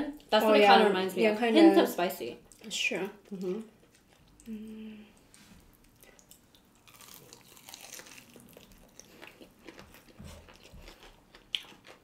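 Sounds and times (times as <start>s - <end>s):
crunching fried chicken: 5.9s - 12.0s.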